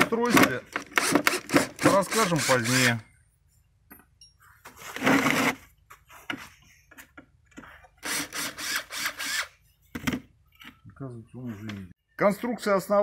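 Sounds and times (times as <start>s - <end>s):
cordless drill whining: 0.8s - 3.0s, 8.0s - 9.6s.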